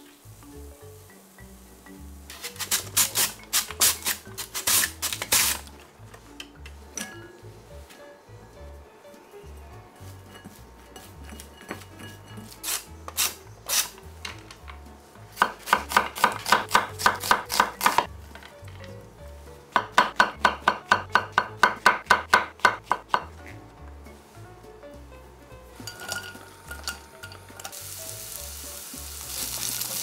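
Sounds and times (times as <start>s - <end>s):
soft background music: 0.0s - 30.0s
knife chopping on wooden board: 15.4s - 18.1s, 19.7s - 23.3s.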